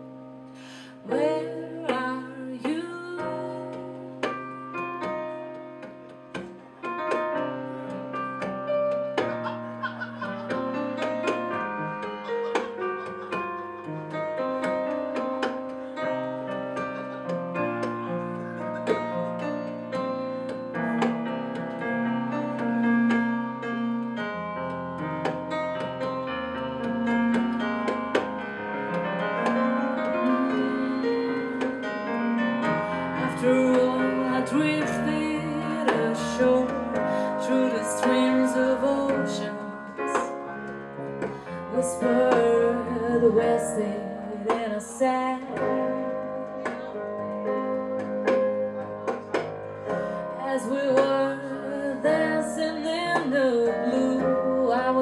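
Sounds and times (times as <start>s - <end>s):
keyboard playing piano chords: 0.0s - 55.0s.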